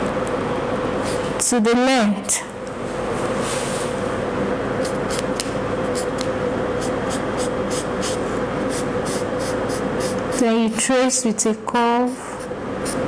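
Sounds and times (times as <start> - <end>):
marker pen scratching fabric: 6.8 - 10.9.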